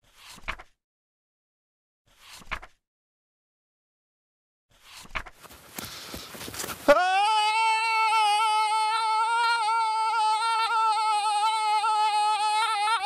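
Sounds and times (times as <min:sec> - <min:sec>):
person screaming: 0:06.9 - 0:13.0.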